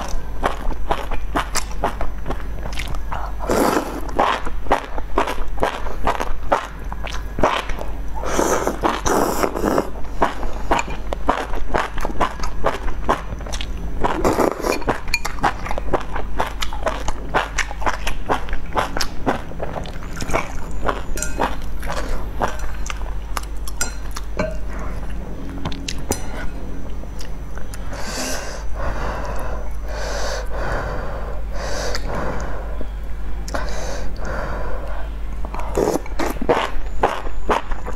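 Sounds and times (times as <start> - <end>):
chewing noodles: 0.0 - 28.0, 35.4 - 37.9
slurping noodles: 3.4 - 4.8, 7.4 - 10.8, 14.1 - 15.0, 35.6 - 36.8.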